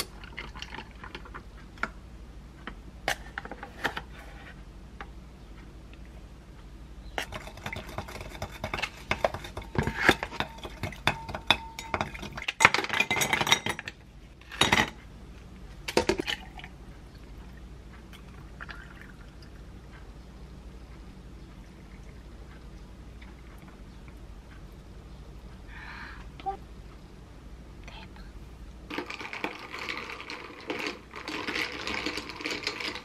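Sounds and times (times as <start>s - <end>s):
stirrer clinking against glass: 7.2s - 13.8s
ice cubes clattering into glass: 28.9s - 33.0s.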